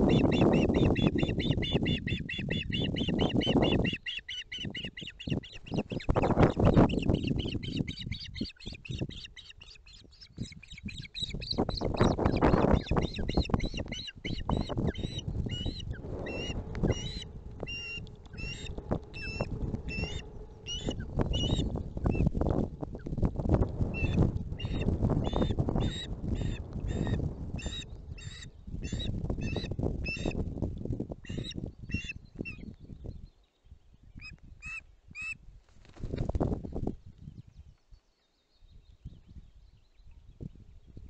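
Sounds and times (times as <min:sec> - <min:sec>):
ospreys calling: 0:00.0 - 0:22.6
wind noise on microphone: 0:00.0 - 0:41.0.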